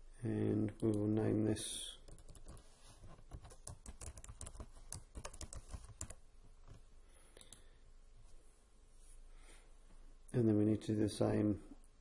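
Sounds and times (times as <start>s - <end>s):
keyboard typing: 2.0s - 2.7s, 3.3s - 6.2s.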